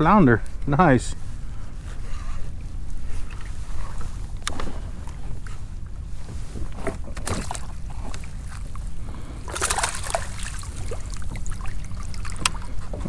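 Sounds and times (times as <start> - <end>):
water splashing against kayak: 6.6 - 13.0.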